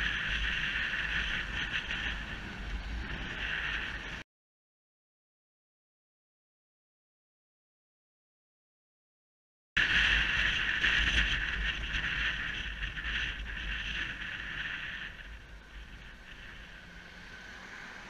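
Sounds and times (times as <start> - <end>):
wind rushing over camera: 0.0 - 4.2, 9.8 - 18.0.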